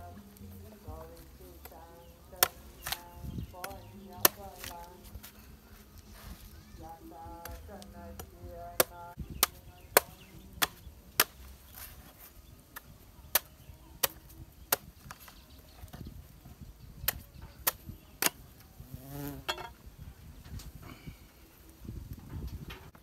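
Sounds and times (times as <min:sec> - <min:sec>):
machete chopping coconut husk: 0:00.9 - 0:05.4, 0:07.4 - 0:15.4, 0:17.1 - 0:18.4.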